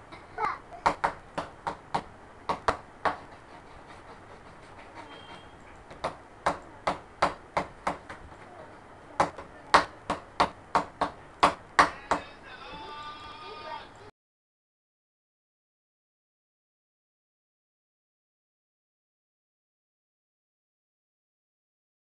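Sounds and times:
sharp knocks: 0.8s - 3.4s, 5.0s - 8.2s, 9.2s - 12.3s.

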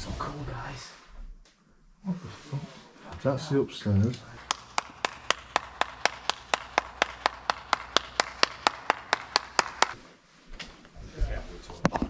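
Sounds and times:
person clapping hands: 4.4s - 10.0s.

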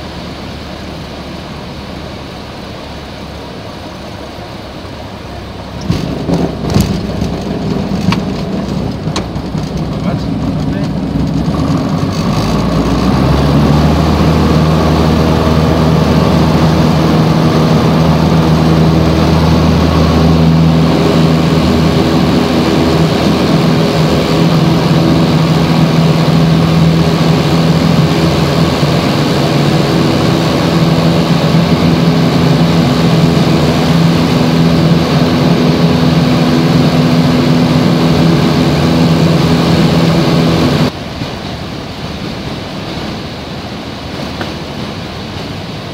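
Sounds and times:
airplane engine and propeller: 0.0s - 45.9s.

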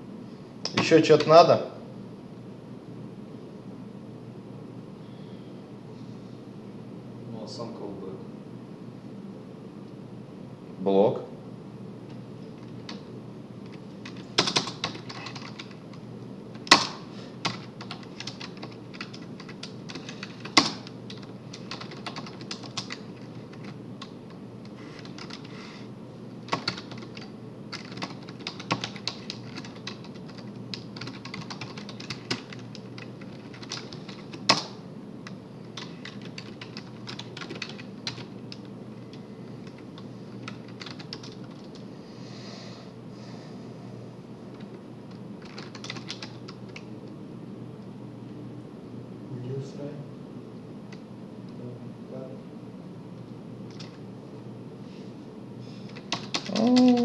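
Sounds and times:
computer keyboard typing: 13.6s - 25.6s, 26.4s - 41.8s, 44.5s - 46.9s, 53.7s - 54.0s, 55.9s - 57.0s.

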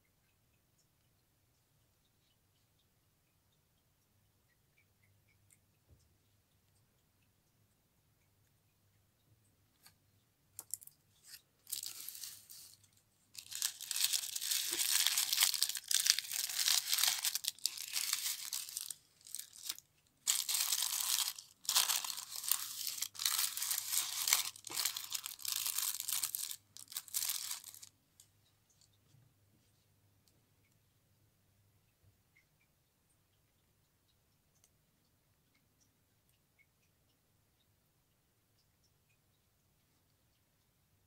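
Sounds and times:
packaging crinkling and rustling: 11.7s - 27.9s.

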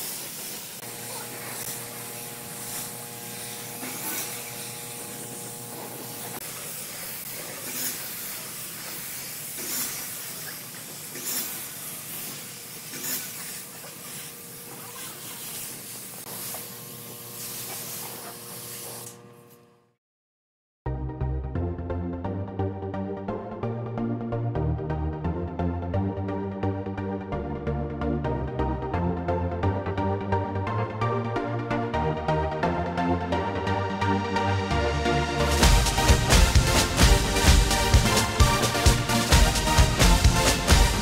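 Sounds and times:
spray gun hissing: 0.0s - 19.2s
steady hum: 0.7s - 7.8s.

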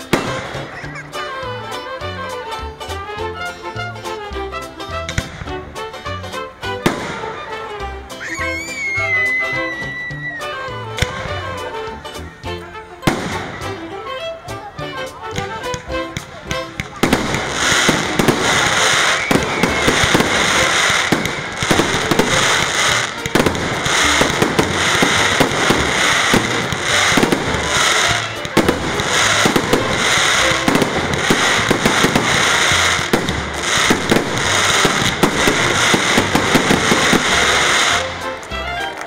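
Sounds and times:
fireworks crackling and popping: 0.0s - 3.4s, 4.6s - 12.2s, 13.0s - 14.4s, 15.0s - 39.0s
music: 0.0s - 39.0s.

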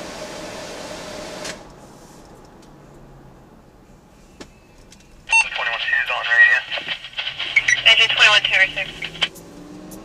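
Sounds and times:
faint vehicle cabin noise: 1.8s - 9.3s
radio click: 5.3s - 9.3s
radio static hiss: 5.3s - 9.3s.

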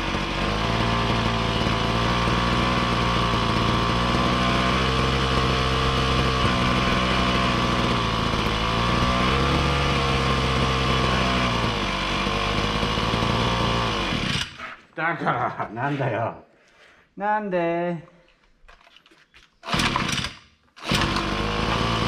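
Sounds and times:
small engine running unsteadily: 0.0s - 14.6s, 19.6s - 22.0s.

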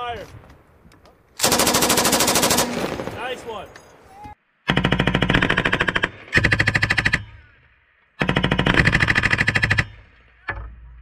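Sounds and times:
machine gun automatic fire: 1.4s - 3.2s
gunfire echo: 1.4s - 3.7s.

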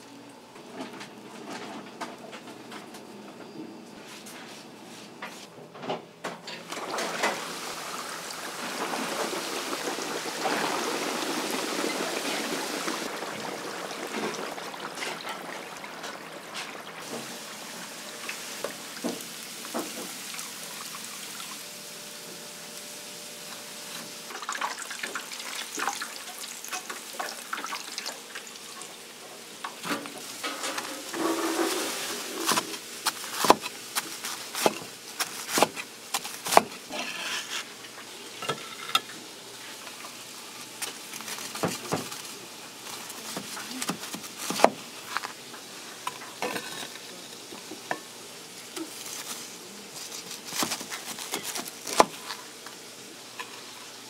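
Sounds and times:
pans and utensils clinking: 5.8s - 7.7s, 14.0s - 17.3s, 24.3s - 40.2s, 46.0s - 48.1s, 53.3s - 53.9s
cooking hiss: 6.5s - 54.0s.

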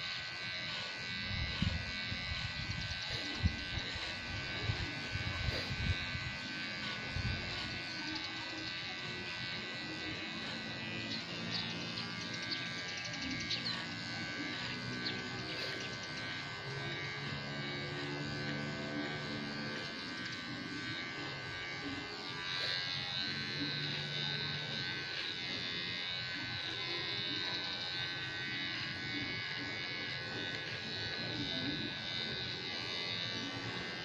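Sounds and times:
electric hair clipper buzzing: 0.0s - 34.0s.

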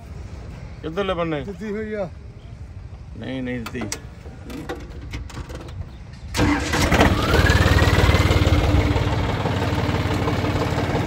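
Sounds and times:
engine running: 6.3s - 11.0s.

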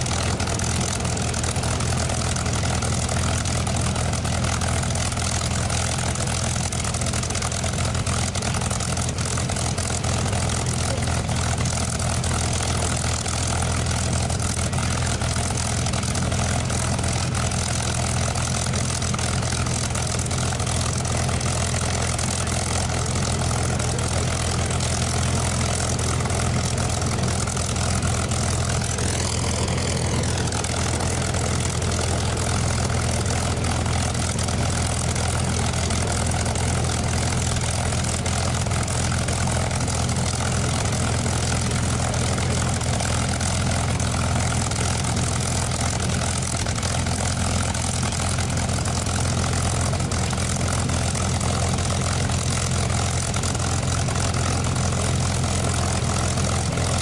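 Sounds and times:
aircraft engine idling: 0.0s - 57.0s.

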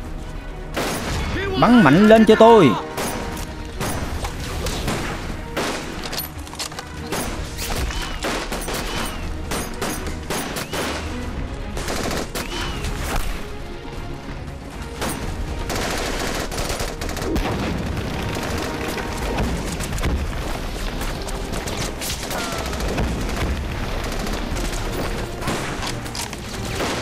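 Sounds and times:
heavy gunfire: 11.8s - 12.8s, 15.0s - 20.6s, 21.5s - 27.0s.

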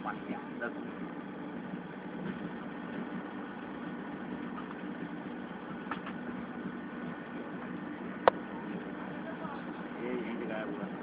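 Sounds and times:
train running noise with hum: 0.0s - 11.0s.

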